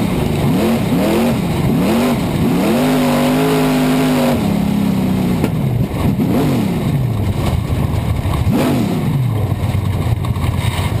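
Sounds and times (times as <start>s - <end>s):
race car engine revving: 0.0s - 11.0s.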